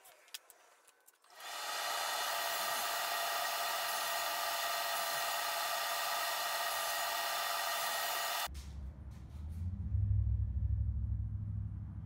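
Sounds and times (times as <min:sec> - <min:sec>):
table saw whirring: 0:01.3 - 0:08.5.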